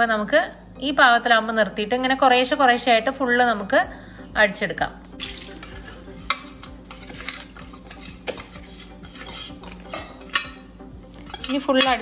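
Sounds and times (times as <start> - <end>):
metal spoon scraping a container: 5.3 - 12.0.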